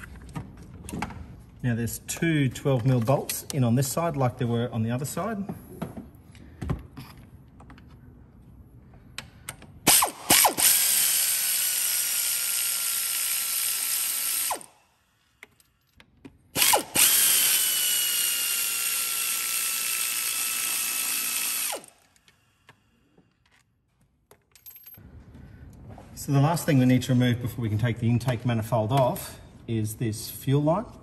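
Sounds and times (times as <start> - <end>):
electric ratchet motor whine: 9.9 - 14.8, 16.6 - 22.2.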